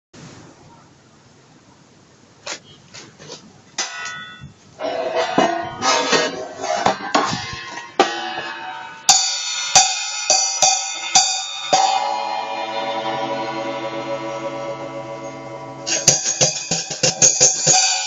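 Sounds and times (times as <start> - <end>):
hi-hat cymbals struck: 7.2 - 18.0.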